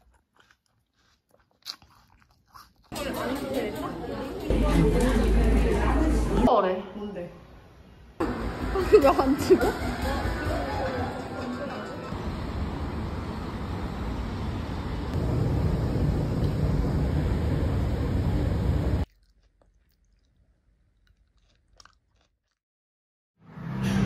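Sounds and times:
biting into soft fruit: 0.0 - 3.0, 19.0 - 22.6.

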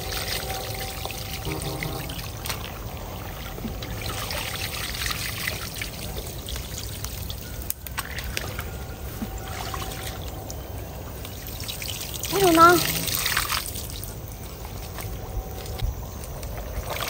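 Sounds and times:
water pouring from basket: 0.0 - 8.7, 11.3 - 14.2
muddy water splashing: 1.3 - 10.5, 11.1 - 15.2
small wet clicks: 5.8 - 8.7.

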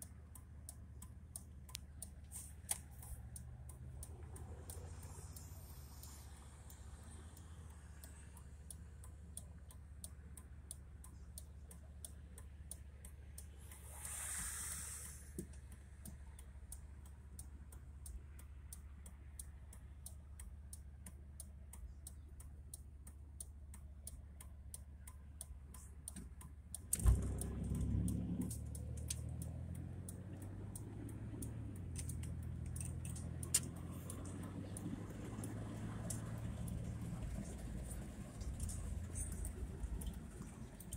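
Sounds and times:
car engine idling: 0.0 - 40.9
turn signal relay ticking: 0.0 - 40.9
car pulling away: 1.2 - 9.6, 26.8 - 40.9.

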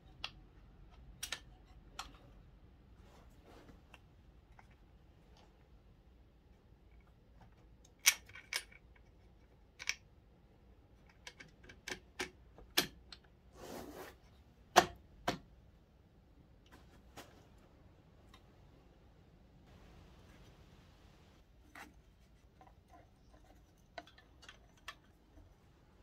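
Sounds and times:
short scrape: 13.6 - 14.2.

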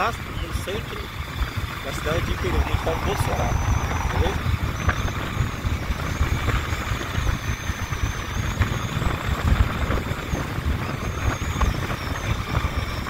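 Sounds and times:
vehicle engine and road noise: 0.9 - 7.3.

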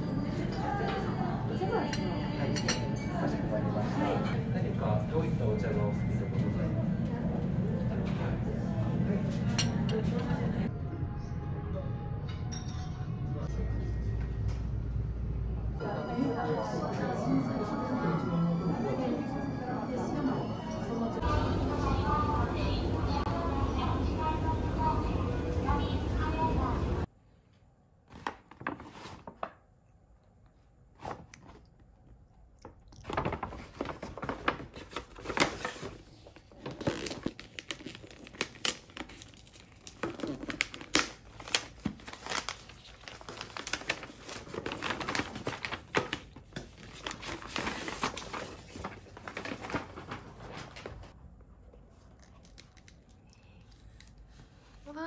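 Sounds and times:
paper packaging crinkling and tearing: 33.0 - 51.1.

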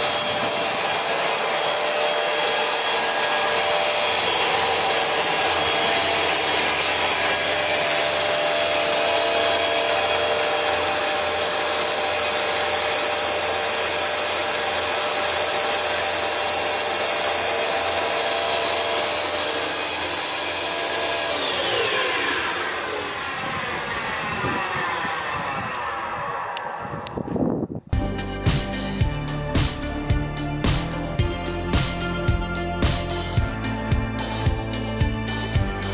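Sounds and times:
panel saw running: 0.0 - 27.2.

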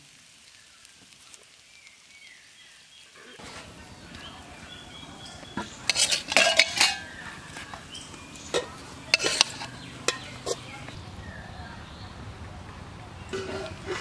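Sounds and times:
spatula scraping and clanking wok: 3.4 - 11.0, 13.2 - 14.0.

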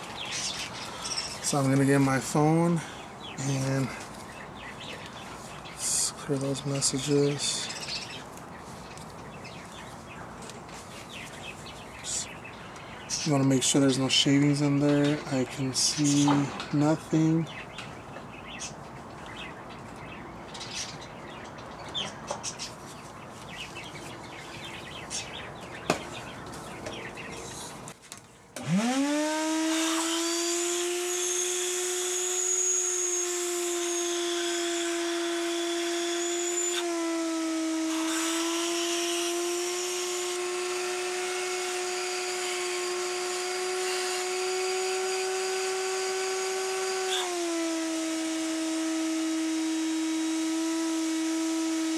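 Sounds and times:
birds chirping: 0.0 - 29.1
shop vacuum motor humming: 28.6 - 51.9.

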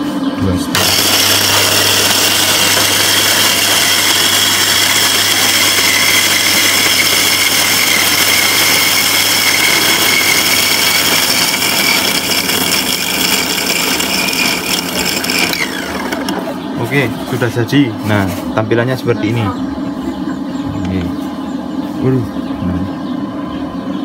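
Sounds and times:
coffee grinder motor whirring: 0.7 - 16.6.

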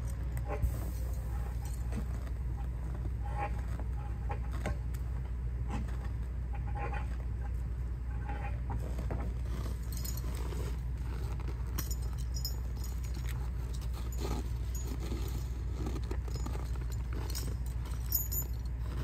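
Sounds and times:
metallic clinks and jangles: 0.0 - 2.2, 9.7 - 19.0
diesel engine humming: 0.0 - 19.0.

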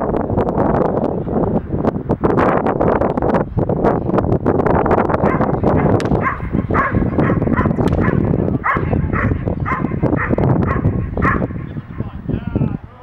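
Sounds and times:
wind rumble on microphone: 0.0 - 13.0
dog barking: 5.2 - 11.7.

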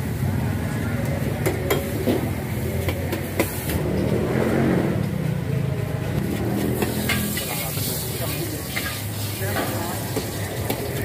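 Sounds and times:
metal ladles and pots clinking: 6.5 - 11.0.

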